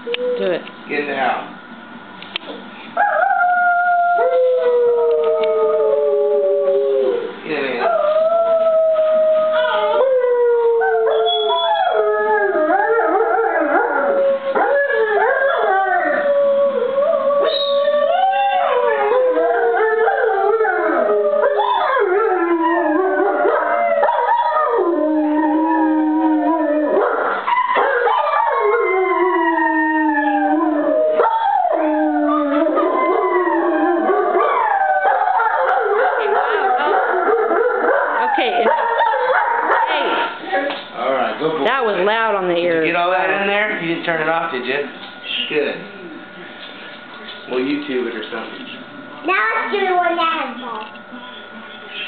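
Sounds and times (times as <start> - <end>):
puppy howling: 3.0 - 43.4
children howling: 3.1 - 7.2, 7.8 - 40.6.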